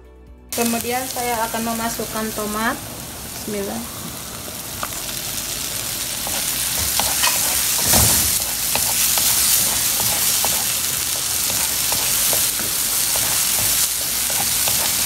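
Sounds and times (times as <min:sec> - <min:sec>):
tomato sizzling in hot oil: 0:00.5 - 0:15.0
wooden spoon scraping a pan: 0:06.2 - 0:15.0.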